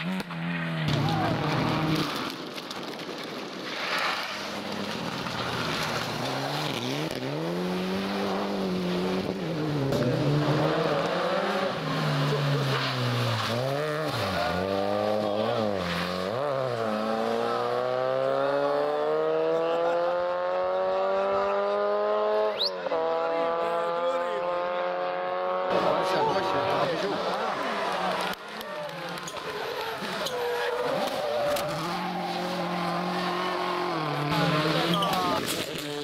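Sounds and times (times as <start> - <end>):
rally car engine revving: 4.2 - 36.0.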